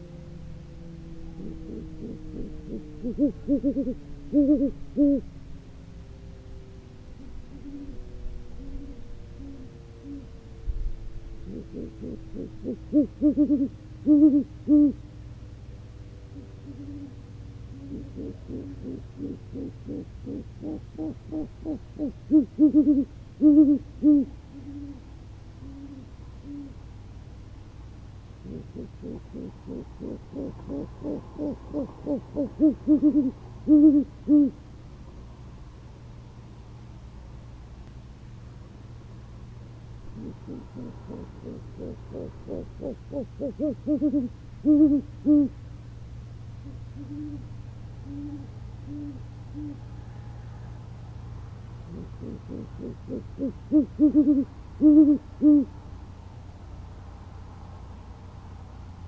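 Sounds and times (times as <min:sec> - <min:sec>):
loud deep owl hoots: 0:00.0 - 0:05.4, 0:06.6 - 0:15.2, 0:16.0 - 0:26.9, 0:28.3 - 0:34.7, 0:40.0 - 0:45.6, 0:46.5 - 0:55.8
softer longer owl hoots: 0:00.0 - 0:05.4, 0:07.1 - 0:10.6, 0:11.4 - 0:15.2, 0:16.2 - 0:26.9, 0:28.3 - 0:34.7, 0:40.0 - 0:45.6, 0:46.5 - 0:55.8.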